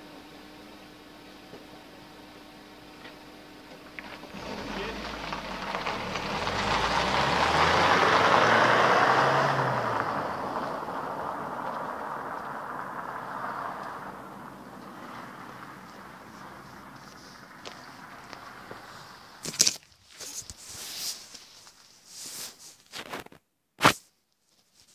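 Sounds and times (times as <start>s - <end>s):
road vehicle driving past: 4.0s - 19.4s.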